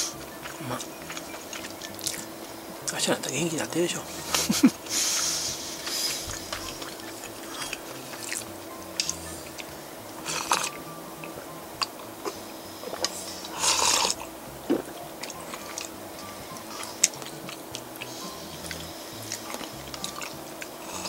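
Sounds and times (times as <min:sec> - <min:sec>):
person chewing: 0:00.0 - 0:03.0, 0:04.0 - 0:21.0
person slurping soup: 0:10.2 - 0:10.8, 0:12.2 - 0:15.9.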